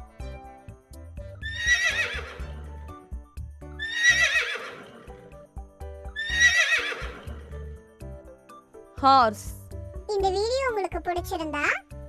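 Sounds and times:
background music: 0.0s - 12.0s
horse neighing: 1.4s - 2.6s, 3.8s - 5.3s, 6.1s - 7.6s.

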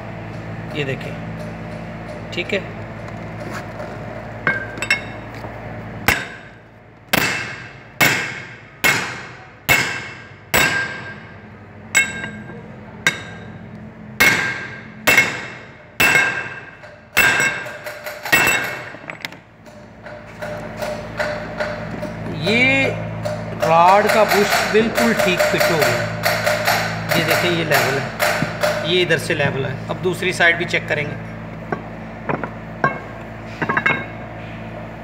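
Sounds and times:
hammer striking steel: 6.0s - 13.6s, 14.2s - 19.0s, 23.2s - 29.1s.

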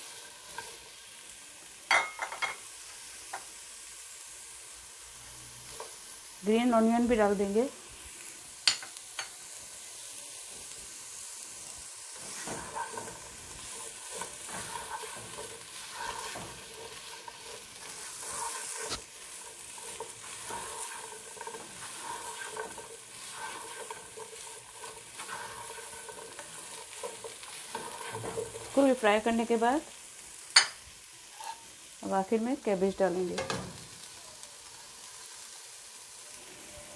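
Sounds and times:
food sizzling in a pot: 0.0s - 36.9s
spoon scraping a pot: 12.2s - 28.9s, 30.6s - 31.7s.

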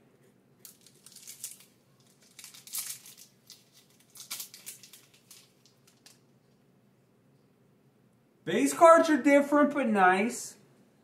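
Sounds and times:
foil wrapper crinkling and tearing: 0.6s - 6.2s.

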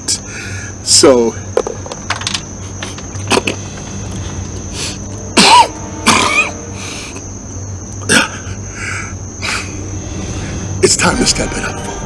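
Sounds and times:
man coughing: 5.4s - 6.6s.

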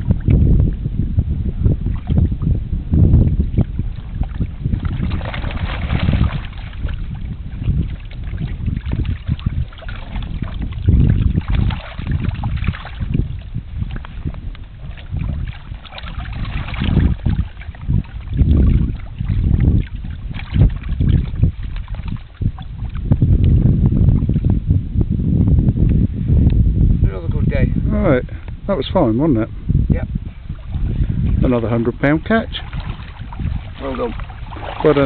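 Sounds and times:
wind buffeting microphone: 0.0s - 35.0s
water splashing in shallows: 1.8s - 2.4s, 3.2s - 23.6s, 30.3s - 35.0s.

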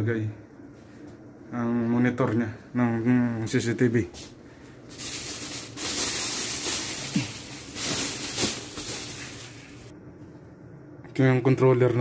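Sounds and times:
plastic sheeting rustling: 4.9s - 9.9s.

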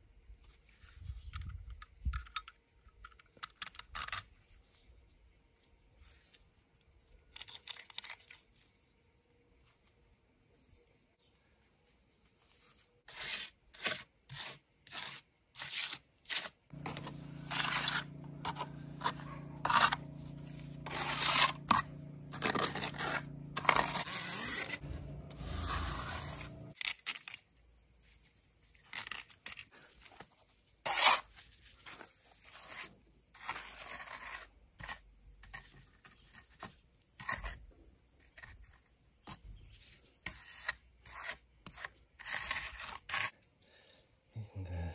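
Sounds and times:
trowel scraping wet cement: 13.1s - 27.4s, 28.9s - 37.6s, 38.2s - 43.4s
low motor hum: 16.7s - 26.8s.

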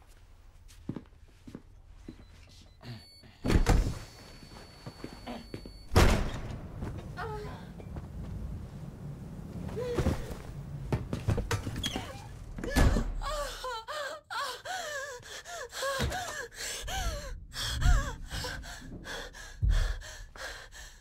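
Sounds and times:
woman gasping and sobbing: 12.6s - 21.0s.

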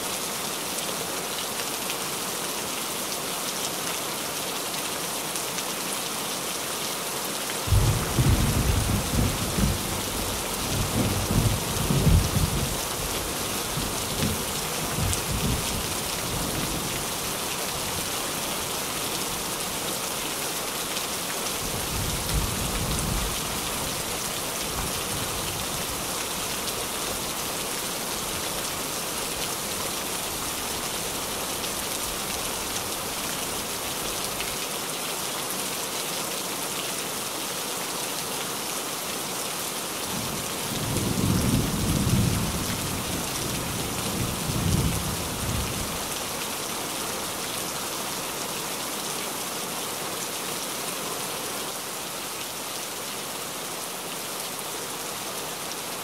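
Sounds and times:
rain on a tin roof: 0.0s - 56.0s
thunder rumbling: 7.7s - 10.0s, 10.8s - 12.7s.

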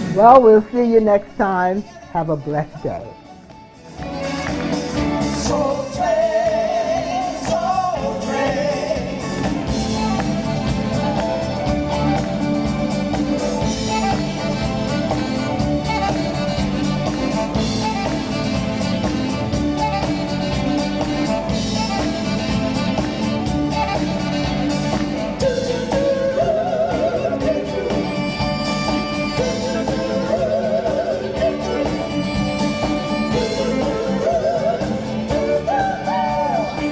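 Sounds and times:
live band with drums bass guitar: 2.8s - 36.9s
female vocal group singing: 5.3s - 10.0s, 33.4s - 36.9s.

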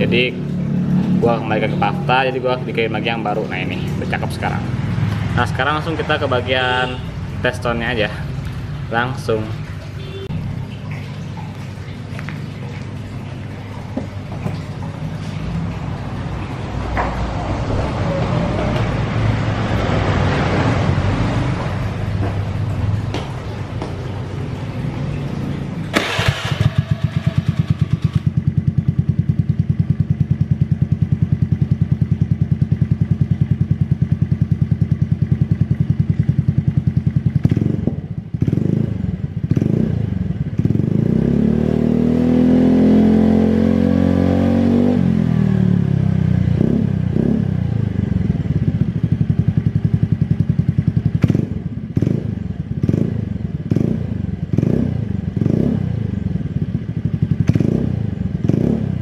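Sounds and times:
scooter engine revving: 15.0s - 59.0s.

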